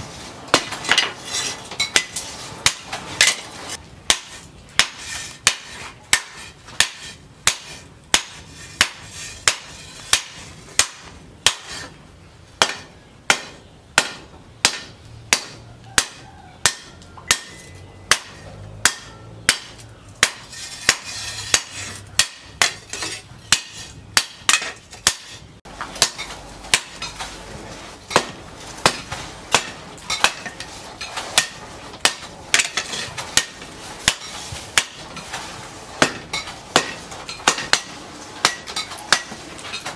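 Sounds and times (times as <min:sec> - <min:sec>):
hammer striking metal on anvil: 0:01.8 - 0:03.5, 0:04.1 - 0:12.0, 0:12.6 - 0:27.1, 0:28.1 - 0:30.6, 0:36.0 - 0:39.4.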